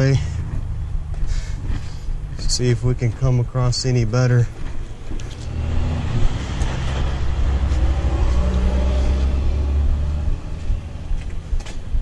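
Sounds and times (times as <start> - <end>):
vehicle engine running: 4.5 - 12.0.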